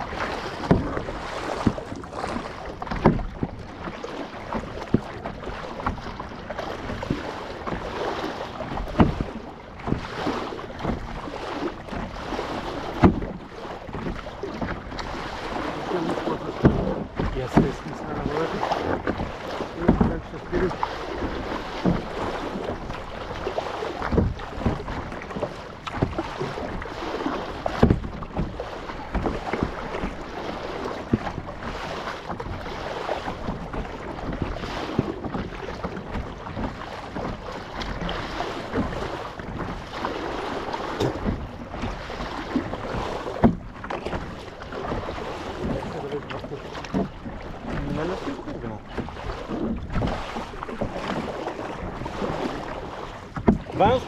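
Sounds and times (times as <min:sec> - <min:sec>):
kayak paddles splashing in water: 0:00.0 - 0:54.0
water sloshing against hull: 0:00.0 - 0:54.0.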